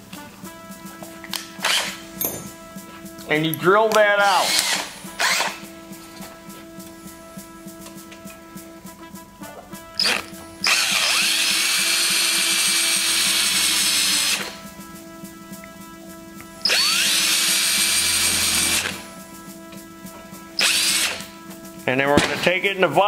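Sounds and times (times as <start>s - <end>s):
power drill whining: 1.4s - 2.3s, 4.3s - 5.6s, 10.0s - 14.6s, 16.6s - 19.0s, 20.6s - 21.3s.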